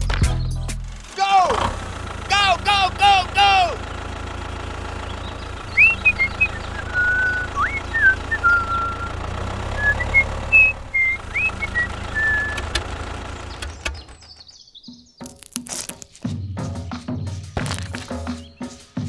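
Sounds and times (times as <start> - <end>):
tractor engine idling: 0.0 - 14.8
high whistled chirps: 5.5 - 12.8.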